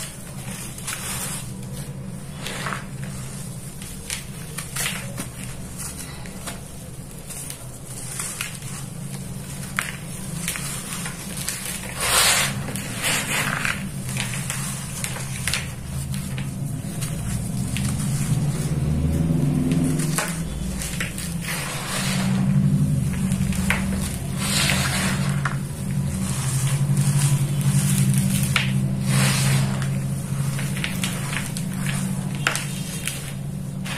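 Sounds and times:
steady low hum: 0.0s - 33.9s.

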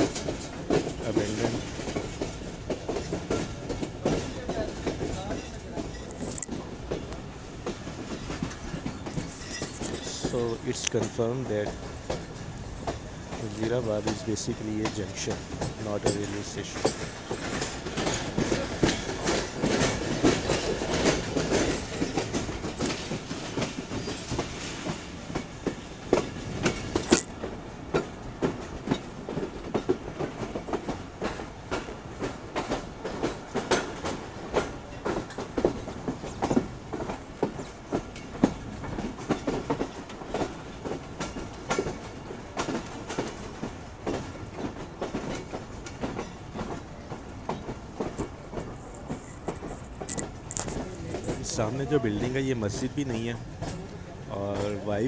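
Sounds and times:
train running rumble: 0.0s - 55.0s
train wheels clattering over joints: 0.0s - 55.0s.

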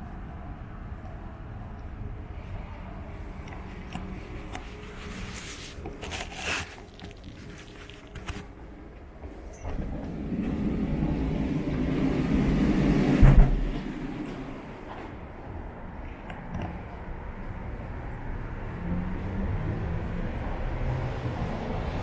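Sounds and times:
street traffic: 0.0s - 22.0s
heavy vehicle rumbling past: 9.8s - 15.4s, 17.8s - 22.0s.

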